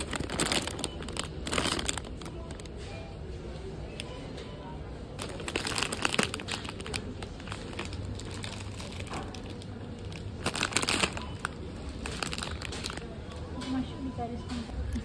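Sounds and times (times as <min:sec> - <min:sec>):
plastic bag crinkling: 0:00.0 - 0:02.8, 0:05.1 - 0:13.5.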